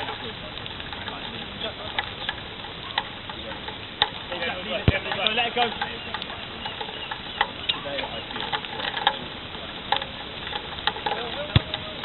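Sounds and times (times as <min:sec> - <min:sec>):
distant players calling: 0:00.0 - 0:12.0
ball kicks: 0:11.5 - 0:11.8.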